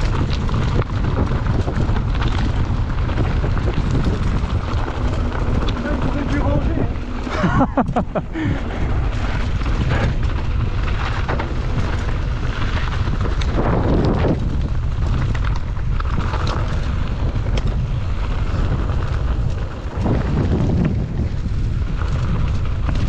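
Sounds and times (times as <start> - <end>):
bike clicks and rattles: 0.0 - 23.0
wind rumbling on microphone: 0.0 - 23.0.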